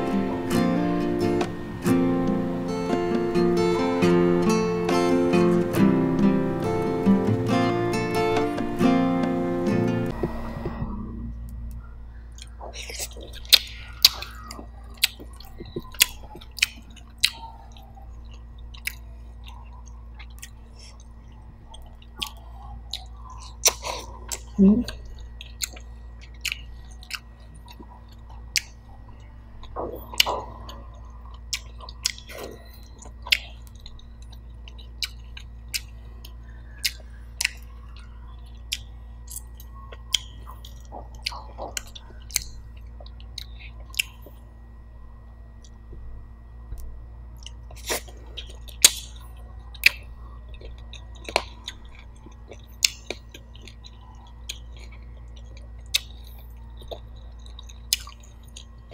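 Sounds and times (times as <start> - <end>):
chewing and biting chicken: 11.8 - 44.5, 46.7 - 58.9
wet smacks: 21.7 - 24.5, 29.6 - 30.8.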